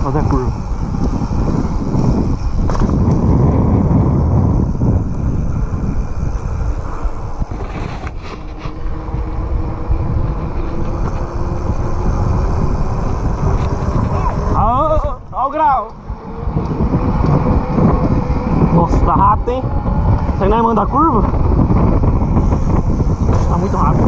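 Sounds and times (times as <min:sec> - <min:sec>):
bike tyres rolling on road: 0:00.0 - 0:24.0
wind on microphone: 0:00.0 - 0:24.0.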